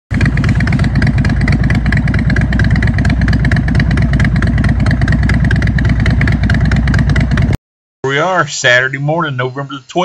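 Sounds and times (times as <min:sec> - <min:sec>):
motorcycle engine idling: 0:00.1 - 0:07.6.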